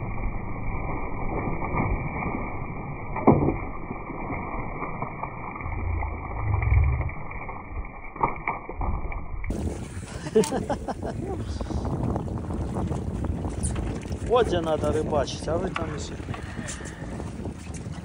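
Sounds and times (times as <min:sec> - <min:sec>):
heavy low surge: 0:00.0 - 0:07.9
boat engine rumble: 0:00.0 - 0:18.0.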